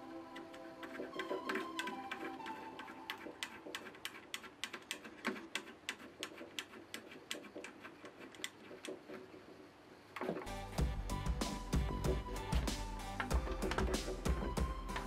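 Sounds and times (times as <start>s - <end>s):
music: 0.0s - 3.8s, 10.5s - 15.0s.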